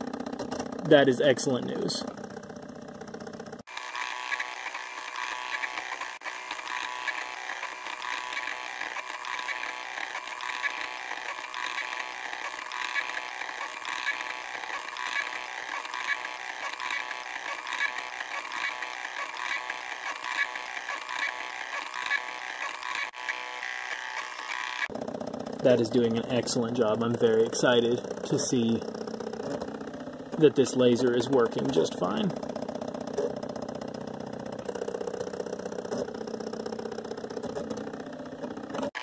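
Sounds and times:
laser engraver buzzing and whirring: 3.6s - 24.9s.

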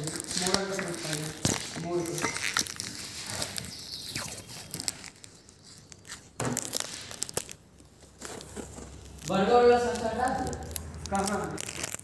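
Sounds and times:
dough rustling and crackling: 0.0s - 12.0s.

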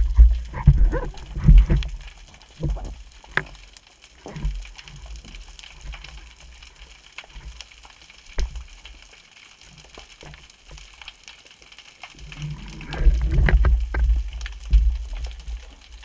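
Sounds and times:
muffled thumps of moving water: 0.0s - 6.2s, 7.3s - 7.6s, 8.3s - 8.8s, 12.2s - 16.0s
faint underwater crackles and clicks: 0.0s - 16.0s.

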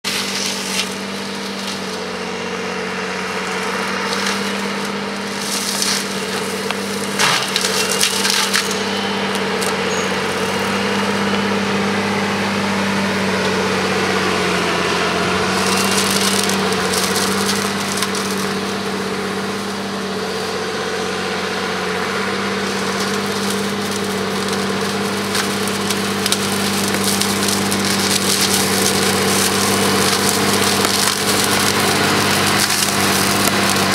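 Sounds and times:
flail mulcher shredding brush: 0.0s - 33.9s
machine hum: 0.0s - 33.9s.

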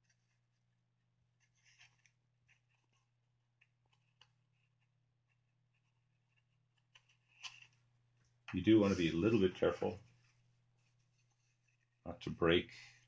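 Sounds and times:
card slices rustling and scraping: 1.4s - 3.1s, 6.8s - 7.8s.

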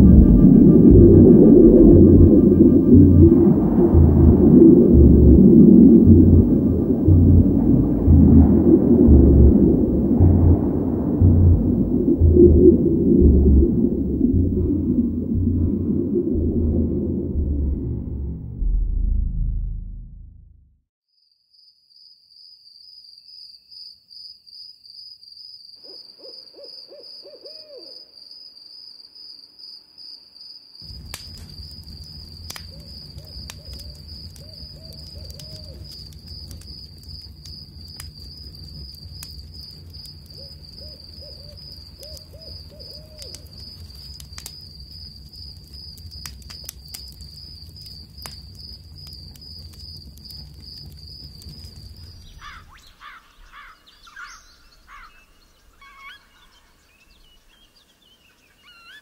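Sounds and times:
pulsing insect trill: 0.0s - 18.1s, 25.4s - 55.0s
low rumble: 0.0s - 20.9s
owl hooting: 25.8s - 28.1s, 40.4s - 43.5s, 52.4s - 56.6s.

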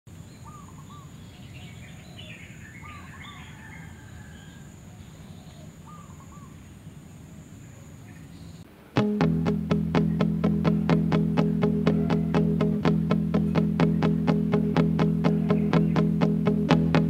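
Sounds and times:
bird call: 0.4s - 6.7s, 10.0s - 12.7s, 15.0s - 16.3s
twittering chirps: 13.6s - 16.5s.

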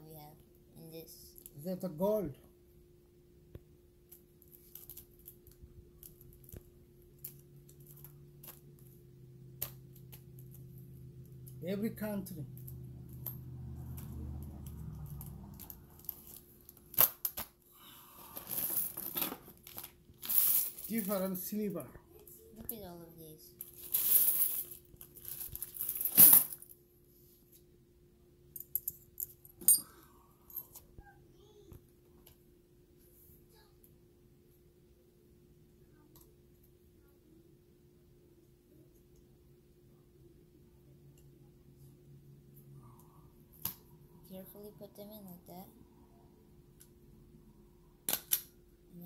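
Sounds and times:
plastic bag of coins crinkling: 18.4s - 21.4s, 23.6s - 26.6s.

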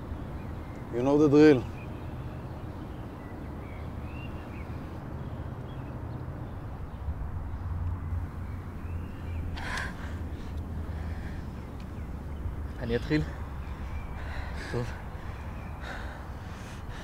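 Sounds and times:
faint bird calls: 8.2s - 17.0s.

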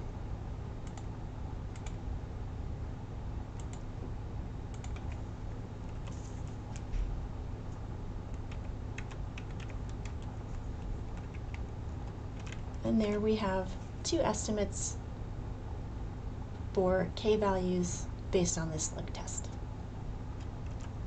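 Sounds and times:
steady low hum: 0.0s - 21.0s
computer keyboard keystrokes: 1.7s - 2.0s, 4.7s - 5.2s, 8.3s - 10.4s, 11.2s - 12.7s, 20.4s - 21.0s.

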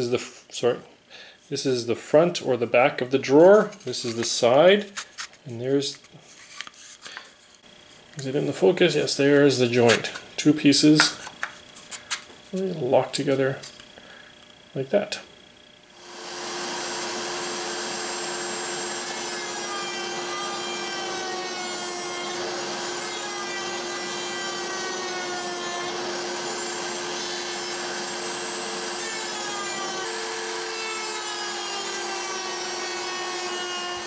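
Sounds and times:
router cutting wood: 16.0s - 34.0s.

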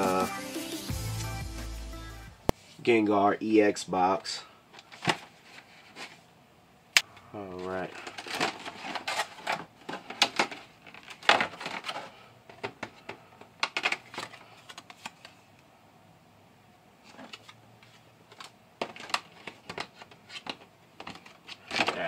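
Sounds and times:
plastic tray clicking and crackling: 7.9s - 15.3s, 18.3s - 22.0s.

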